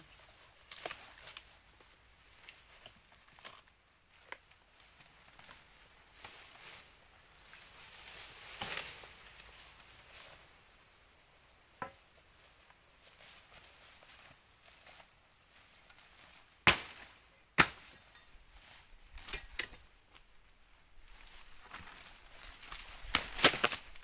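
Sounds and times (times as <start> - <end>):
high drone of insects: 0.0 - 24.0.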